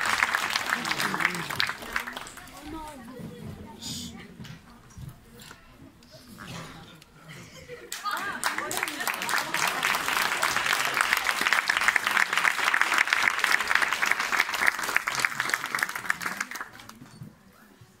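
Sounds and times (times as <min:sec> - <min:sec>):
audience applauding: 0:00.0 - 0:02.6, 0:07.9 - 0:17.0.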